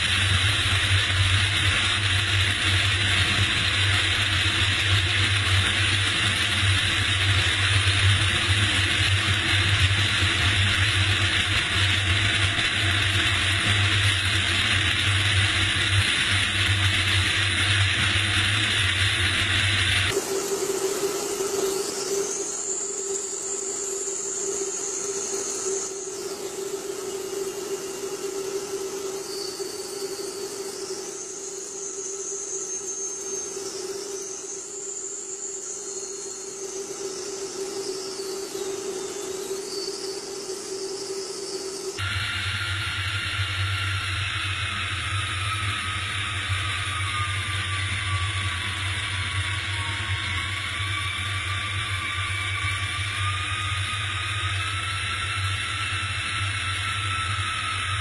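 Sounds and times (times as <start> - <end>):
jet engine noise: 0.0 - 58.0.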